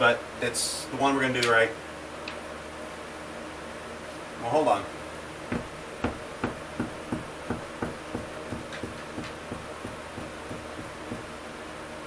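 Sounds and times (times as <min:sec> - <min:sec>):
hammer tapping on wood: 0:05.5 - 0:11.3.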